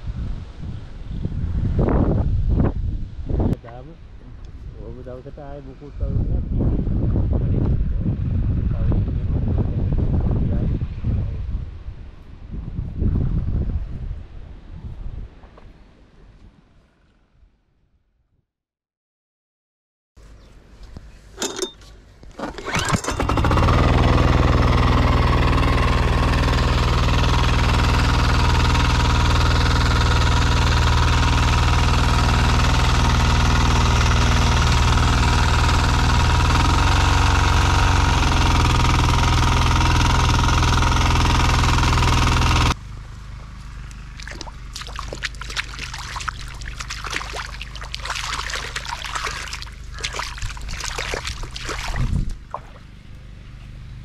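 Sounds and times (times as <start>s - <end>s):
small tiller engine running: 22.4s - 52.7s
sloshing in muddy water: 43.8s - 53.0s.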